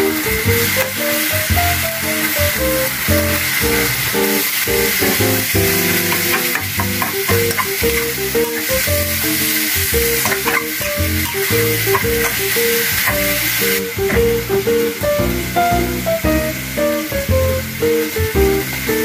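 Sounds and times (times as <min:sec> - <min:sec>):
meat sizzling in a wok: 0:00.0 - 0:19.0
plucked guitar music: 0:00.0 - 0:19.0
metal spatula scraping wok: 0:05.1 - 0:13.6
spatula clicking on pan: 0:05.7 - 0:14.3.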